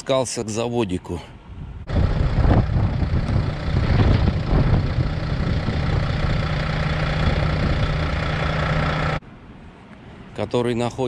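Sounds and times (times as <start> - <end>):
low hum: 1.7 - 9.4
truck diesel engine running: 1.9 - 9.2.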